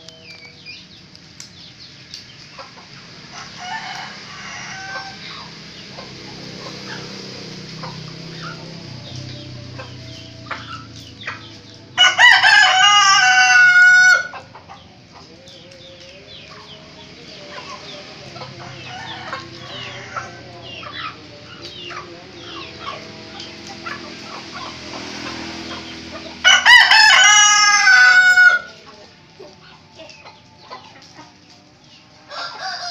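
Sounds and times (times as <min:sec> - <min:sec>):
chickens clucking: 0:00.0 - 0:32.9
rooster crowing: 0:03.3 - 0:14.5, 0:18.4 - 0:21.2, 0:24.2 - 0:28.9, 0:32.2 - 0:32.9.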